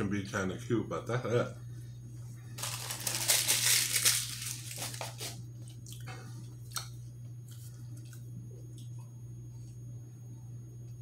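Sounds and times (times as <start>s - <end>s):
low electrical hum: 0.0s - 11.0s
chewing crunchy food: 4.6s - 9.8s.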